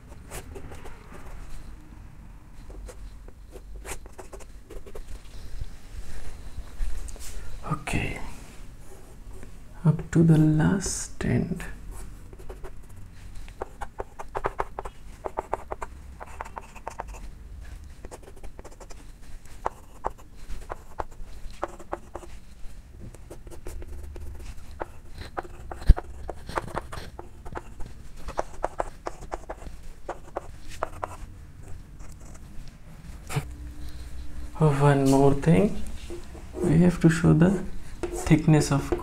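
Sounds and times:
chalk tapping and scratching: 2.6s - 5.3s, 12.0s - 32.5s, 35.0s - 39.0s.

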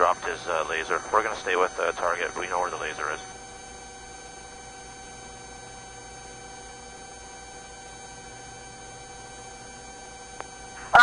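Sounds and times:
radio static hiss: 0.0s - 3.4s, 10.7s - 11.0s
faint tonal hum: 0.0s - 11.0s.

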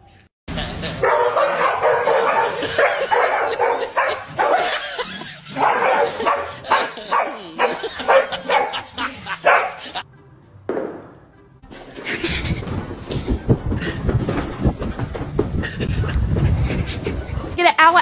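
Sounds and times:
dogs barking: 0.8s - 10.0s.

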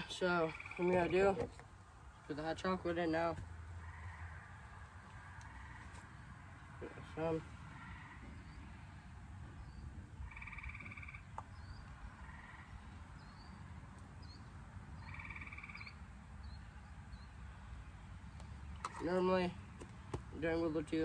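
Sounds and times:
low outdoor background: 0.0s - 21.0s
frog trilling: 0.5s - 1.0s, 10.2s - 11.3s, 15.0s - 16.0s.

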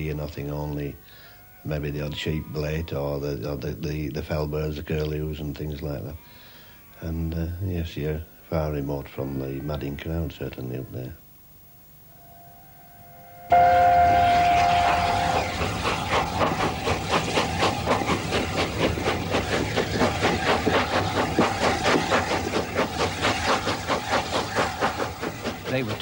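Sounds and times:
steam whistle: 12.1s - 26.0s
locomotive exhaust beats: 12.6s - 26.0s
train rumble: 13.1s - 26.0s.

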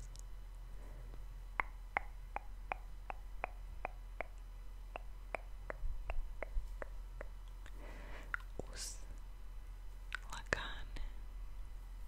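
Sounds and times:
sharp mouth clicks: 1.6s - 8.7s, 10.1s - 10.4s.

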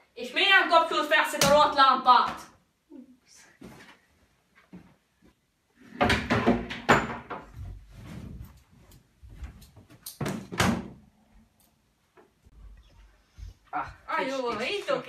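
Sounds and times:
chair and bedding bumps and rustling: 5.9s - 11.0s.

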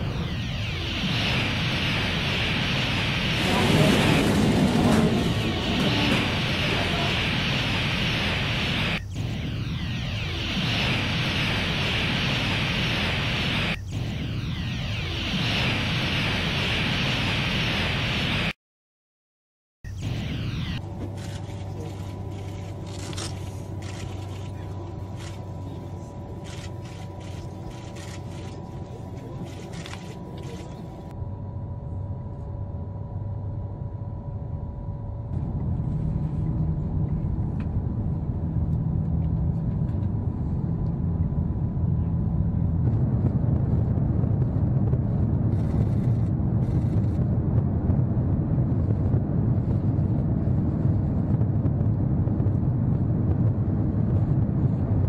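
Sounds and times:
train whine: 0.0s - 18.5s.

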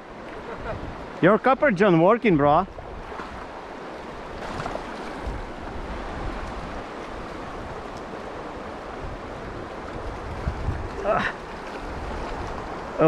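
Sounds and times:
river flowing over rocks: 3.2s - 13.0s.

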